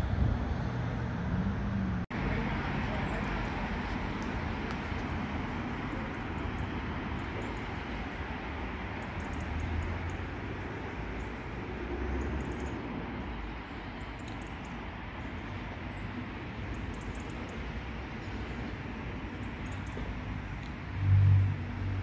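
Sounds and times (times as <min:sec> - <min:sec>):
outdoor rumble and hiss: 0:00.0 - 0:22.0
faint high ticks: 0:14.2 - 0:14.8.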